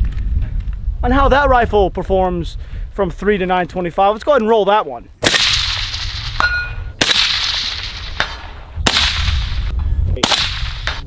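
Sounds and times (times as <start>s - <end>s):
bullet striking steel target: 5.2s - 11.0s
rifle shots with echo: 5.2s - 11.0s.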